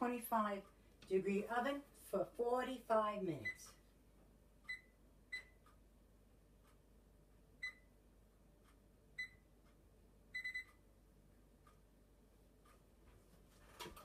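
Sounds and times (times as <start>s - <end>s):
keypad beeps: 4.7s - 5.6s, 7.6s - 7.9s, 9.2s - 9.4s, 10.4s - 10.8s.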